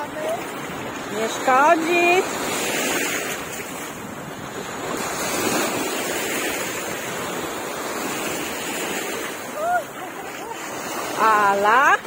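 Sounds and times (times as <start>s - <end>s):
waves washing over pebbles: 0.0s - 12.0s.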